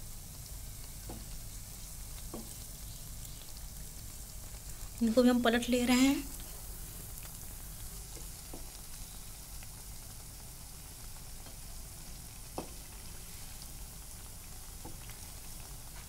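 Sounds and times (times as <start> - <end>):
food deep-frying in hot oil: 0.0 - 16.0.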